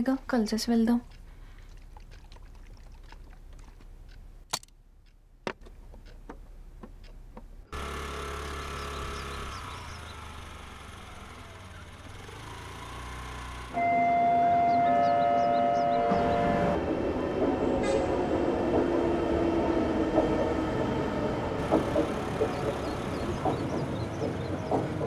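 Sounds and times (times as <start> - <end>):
vehicle engine humming: 5.2 - 25.0
sharp knocks: 21.6 - 25.0.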